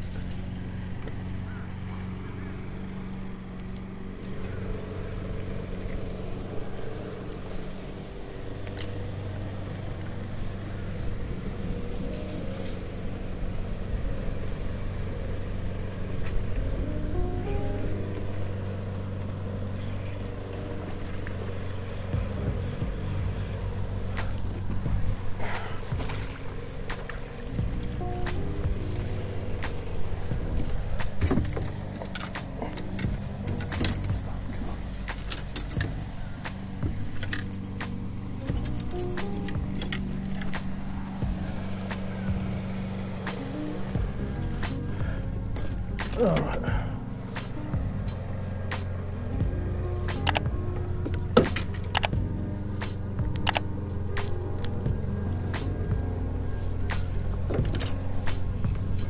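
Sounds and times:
electric motor humming: 0:00.0 - 0:59.0
landing net clinking and rattling: 0:30.3 - 0:40.8.

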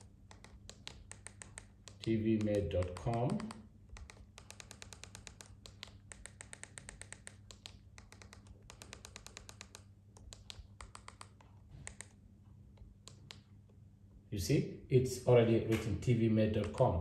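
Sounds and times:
remote control buttons clicking: 0:00.0 - 0:12.2, 0:12.8 - 0:13.5.

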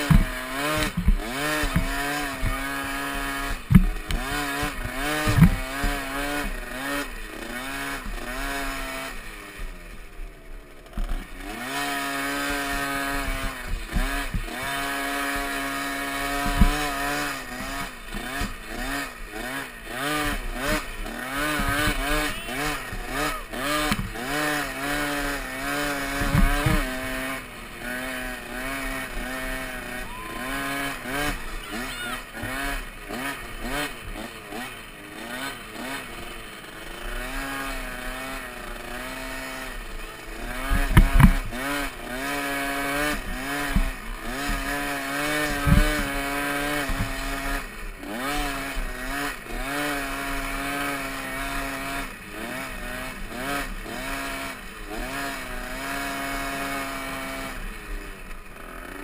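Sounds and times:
heavy thumps over bumps: 0:00.0 - 0:02.8, 0:03.5 - 0:06.0, 0:13.2 - 0:15.4, 0:16.2 - 0:18.8, 0:20.2 - 0:27.3, 0:40.6 - 0:41.8
motocross bike engine revving: 0:00.0 - 0:59.0.

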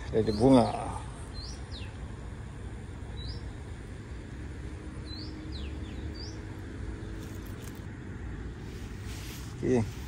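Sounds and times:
bird chirping: 0:00.0 - 0:02.2, 0:03.0 - 0:03.8, 0:04.8 - 0:07.9.

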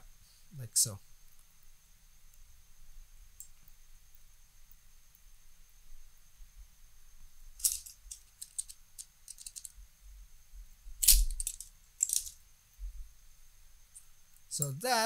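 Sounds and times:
small sharp clicks and taps: 0:03.4 - 0:03.8.

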